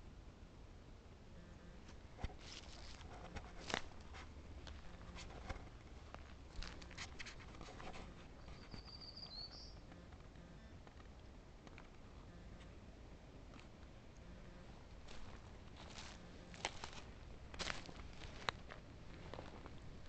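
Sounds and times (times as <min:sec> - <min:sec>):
high bird trill: 0:08.3 - 0:09.9
faint clicks and crackles: 0:09.8 - 0:12.8.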